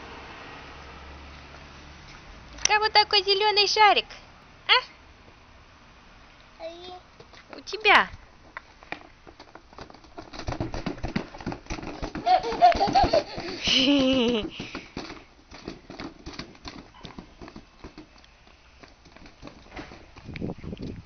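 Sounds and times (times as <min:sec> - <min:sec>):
small shoes tapping on brick: 0:08.4 - 0:21.0
toddler laughing and squealing: 0:12.1 - 0:14.5.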